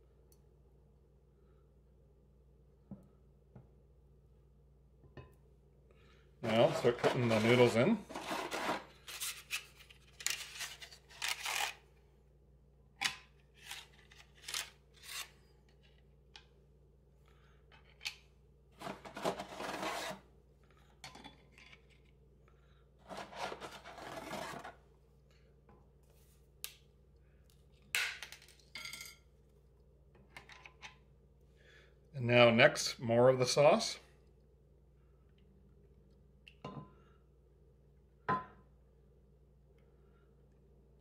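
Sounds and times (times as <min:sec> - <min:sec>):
dry noodles scraping in baking dish: 0:06.4 - 0:09.6, 0:18.8 - 0:20.2, 0:23.0 - 0:24.8.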